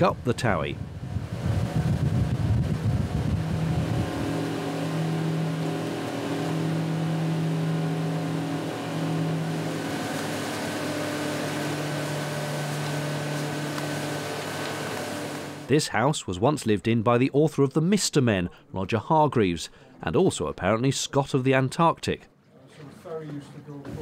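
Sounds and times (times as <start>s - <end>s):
boat engine droning: 0.0s - 15.7s.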